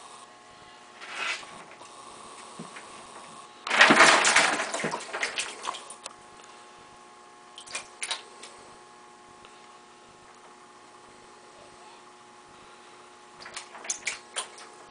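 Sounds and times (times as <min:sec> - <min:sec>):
alligator splashing in water: 0:03.7 - 0:06.0, 0:13.4 - 0:14.7.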